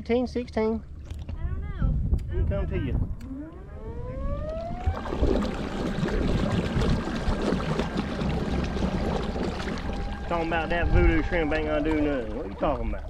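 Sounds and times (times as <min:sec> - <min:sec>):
electric motor whining: 0:03.1 - 0:05.5, 0:08.4 - 0:13.0
water rushing along hull: 0:03.5 - 0:13.0.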